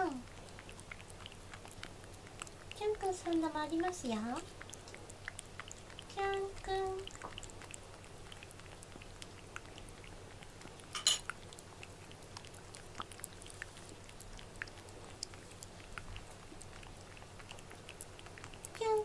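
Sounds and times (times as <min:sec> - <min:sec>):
cat licking and eating: 0:00.0 - 0:19.0
clink against metal dish: 0:11.0 - 0:11.2.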